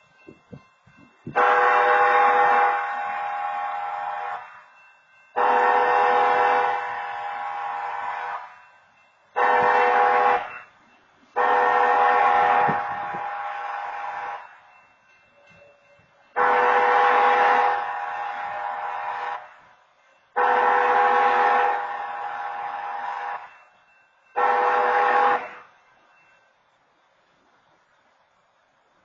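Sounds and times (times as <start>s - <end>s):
locomotive air horn blasts: 1.3s - 4.6s, 5.3s - 8.6s, 9.4s - 10.7s, 11.3s - 14.7s, 16.3s - 19.7s, 20.3s - 23.5s, 24.3s - 25.8s.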